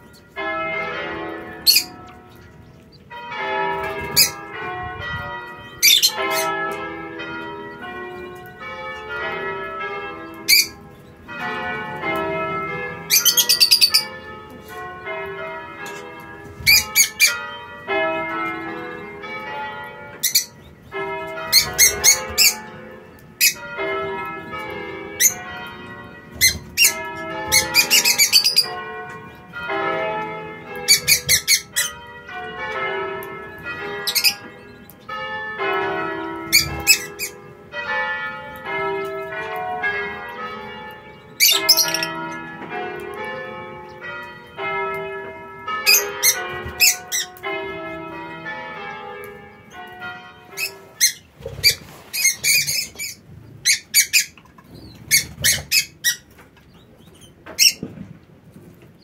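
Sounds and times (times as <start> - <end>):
high bird chirps: 13.1 - 14.1, 41.4 - 42.1
bell-like chiming tones: 41.2 - 42.6.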